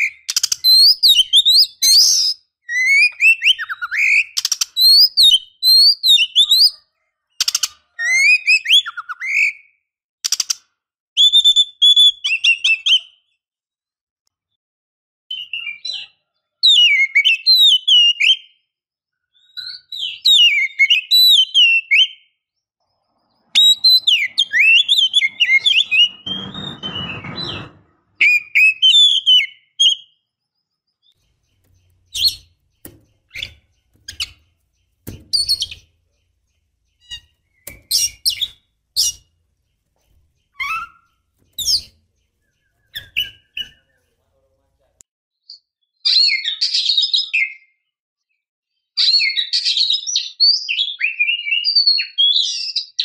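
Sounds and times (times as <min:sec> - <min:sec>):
bird whistling and warbling: 0:00.0 - 0:06.8, 0:07.4 - 0:09.7, 0:11.2 - 0:13.2, 0:23.4 - 0:30.2, 0:31.5 - 0:35.9, 0:36.9 - 0:39.3, 0:40.5 - 0:44.1.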